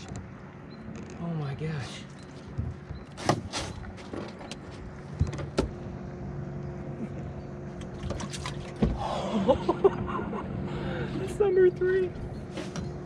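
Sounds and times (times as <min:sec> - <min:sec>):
outboard motor humming: 0:02.2 - 0:13.0
knocks and clunks on boat deck: 0:02.3 - 0:05.9, 0:07.0 - 0:10.3, 0:11.0 - 0:13.0.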